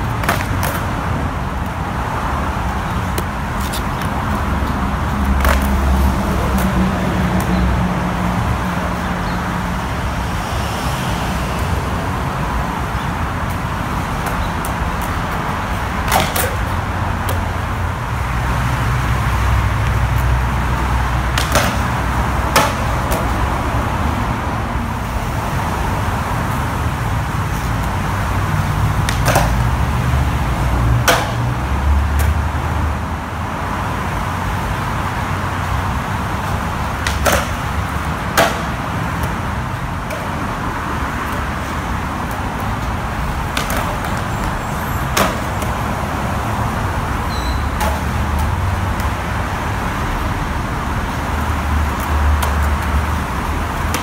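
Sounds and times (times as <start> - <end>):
skateboard wheels rolling on concrete: 0.0 - 54.0
traffic hiss: 0.0 - 54.0
skateboard wooden clacks: 0.1 - 1.0, 2.8 - 6.8, 16.0 - 17.6, 21.3 - 23.3, 29.0 - 29.8, 31.0 - 31.5, 36.9 - 39.4, 40.0 - 40.6, 42.2 - 45.8, 47.8 - 49.2, 51.9 - 54.0.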